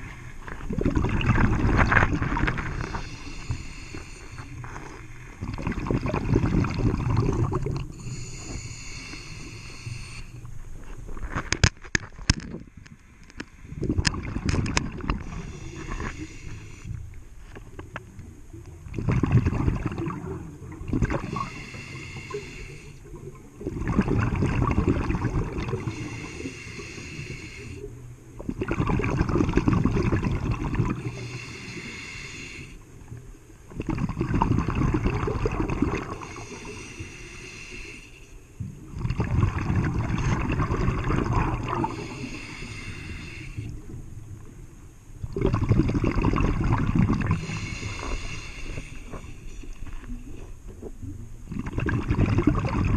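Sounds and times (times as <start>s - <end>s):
exhaled bubbles rushing: 0.0s - 3.3s, 5.4s - 8.0s, 13.7s - 15.6s, 18.8s - 21.6s, 23.2s - 26.0s, 28.4s - 31.2s, 33.7s - 36.6s, 38.8s - 42.2s, 45.2s - 48.1s, 51.4s - 52.9s
regulator inhale hiss: 2.6s - 5.4s, 7.9s - 10.6s, 15.1s - 17.1s, 21.2s - 23.3s, 25.7s - 28.0s, 31.0s - 33.1s, 36.0s - 38.7s, 41.6s - 44.0s, 47.2s - 50.1s.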